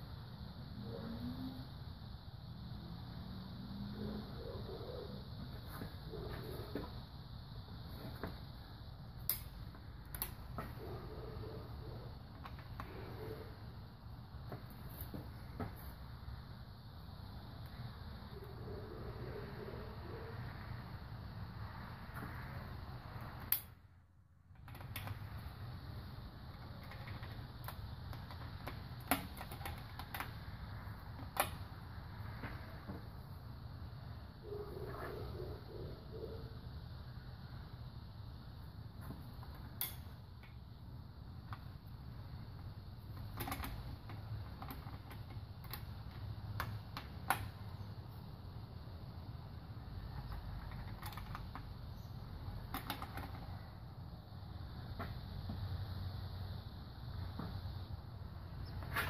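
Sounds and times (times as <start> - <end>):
low background noise: 0.0 - 59.0
breaker bar metallic clicks: 39.8 - 40.6.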